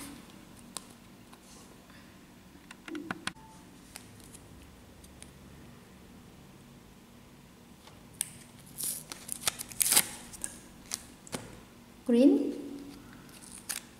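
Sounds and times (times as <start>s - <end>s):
paper clicks and crinkles: 8.2s - 11.1s, 12.9s - 13.9s.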